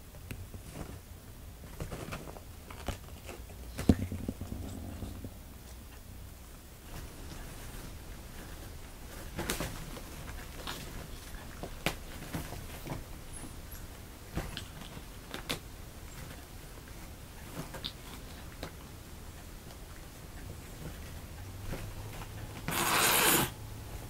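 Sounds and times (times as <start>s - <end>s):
claws scratching fabric: 22.6s - 23.6s.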